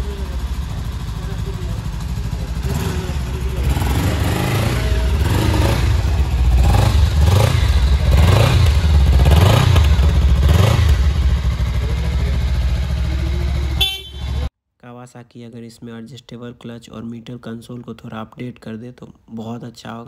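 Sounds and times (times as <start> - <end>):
motorcycle engine idling and revving: 0.0 - 14.5.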